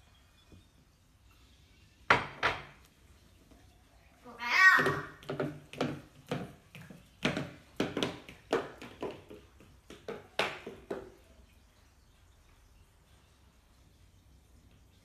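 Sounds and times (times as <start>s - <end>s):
slippered footsteps on tile: 4.8s - 11.3s.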